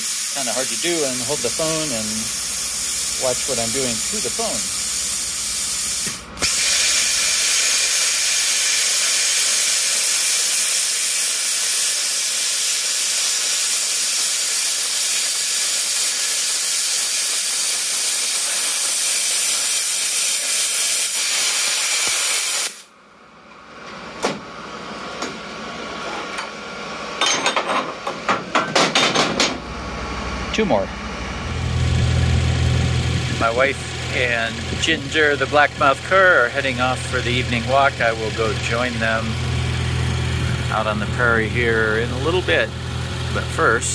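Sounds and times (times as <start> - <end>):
plasma cutter hissing: 0.0 - 22.9.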